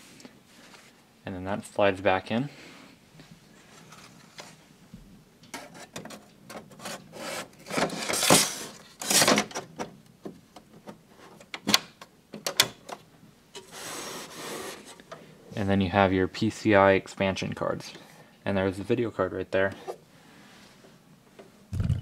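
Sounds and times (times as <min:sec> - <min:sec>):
knocks: 0:21.7 - 0:22.0.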